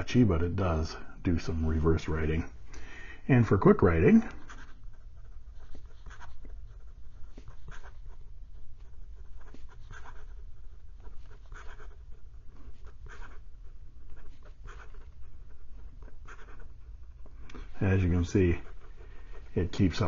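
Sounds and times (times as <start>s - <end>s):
fountain pen scratching on paper: 3.9s - 20.0s.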